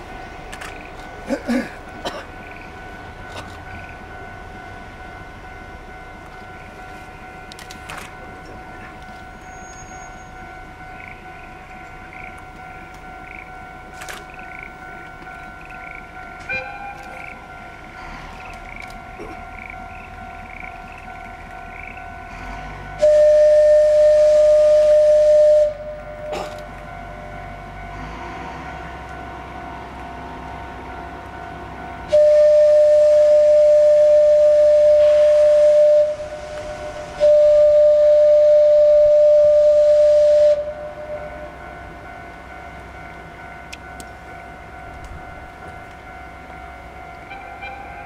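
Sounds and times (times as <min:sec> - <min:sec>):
locomotive whistle blasts: 0:09.4 - 0:10.5, 0:16.4 - 0:17.2, 0:22.8 - 0:26.0, 0:32.1 - 0:41.4, 0:47.2 - 0:48.0
steam hiss: 0:32.1 - 0:40.8.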